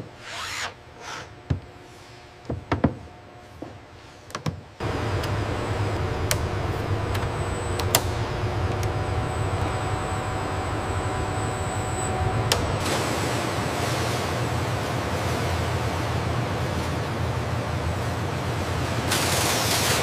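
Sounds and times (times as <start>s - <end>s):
low machine hum with hiss: 0.0s - 20.0s
clicks: 4.8s - 12.8s.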